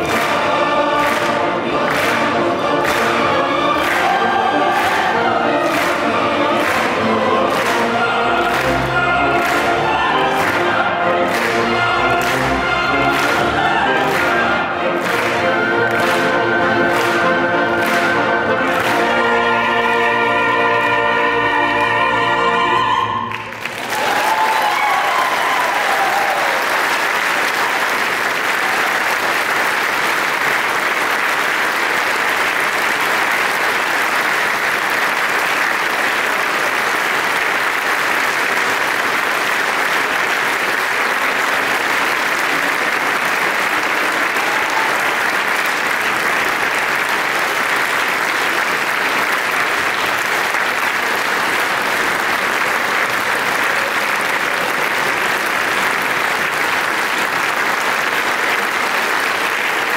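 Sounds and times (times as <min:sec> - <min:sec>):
orchestra and opera singers chord: 0:00.0 - 0:23.7
audience applause: 0:00.0 - 0:59.9.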